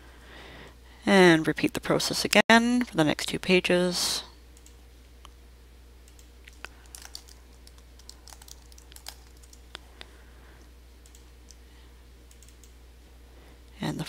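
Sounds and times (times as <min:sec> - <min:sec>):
computer keyboard typing: 0:06.1 - 0:09.7, 0:11.0 - 0:11.6, 0:12.3 - 0:12.7.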